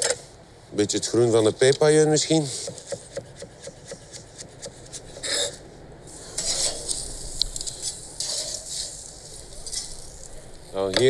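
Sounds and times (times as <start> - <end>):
knife chopping on wooden board: 2.6 - 5.0
scraping and rustling: 5.0 - 11.0.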